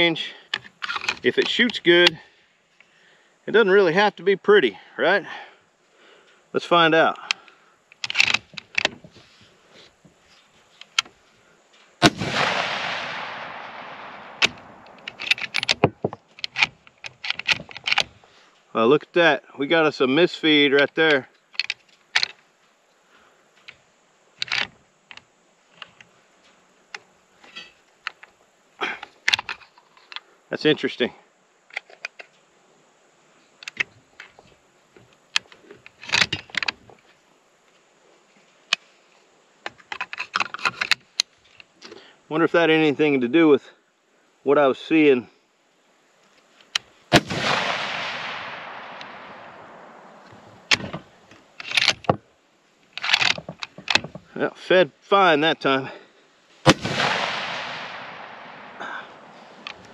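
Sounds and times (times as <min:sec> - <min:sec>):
rifle bolt metallic clicks: 0:07.2 - 0:09.0, 0:12.0 - 0:18.1, 0:46.7 - 0:51.0, 0:51.6 - 0:52.2, 0:53.0 - 0:54.2
rifle shot: 0:12.0 - 0:15.7, 0:47.1 - 0:50.2, 0:56.6 - 0:59.3
rifle bolt clicking: 0:12.4 - 0:18.1.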